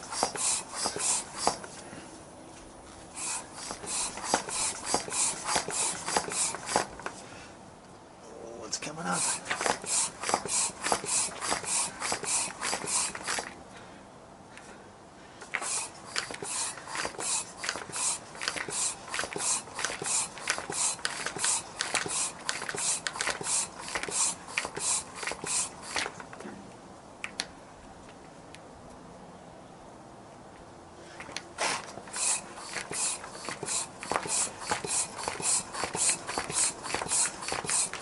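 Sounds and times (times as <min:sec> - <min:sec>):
floor pump air hiss: 0:00.0 - 0:02.1, 0:02.9 - 0:07.4, 0:09.0 - 0:13.6, 0:15.4 - 0:26.2, 0:31.1 - 0:38.0.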